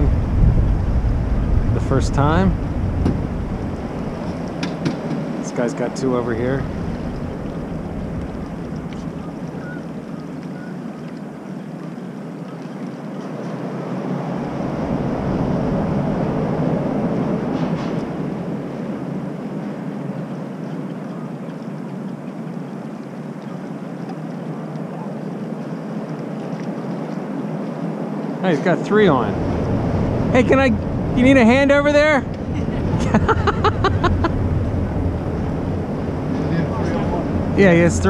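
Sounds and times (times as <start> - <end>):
wind rushing: 0.0 - 9.2, 13.7 - 19.0, 29.0 - 38.0
river water rushing: 2.5 - 38.0.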